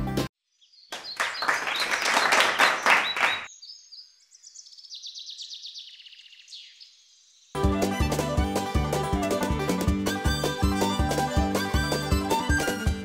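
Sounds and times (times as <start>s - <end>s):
music: 0.0s - 0.3s, 7.6s - 13.0s
applause: 1.0s - 3.5s.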